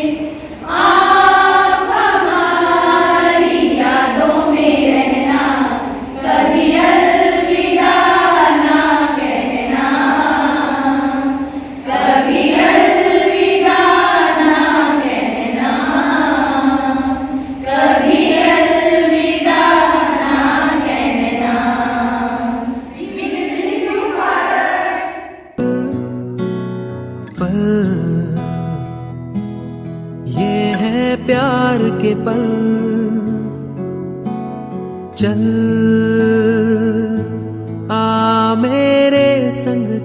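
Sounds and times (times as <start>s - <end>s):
women singing unaccompanied: 0.0s - 25.3s.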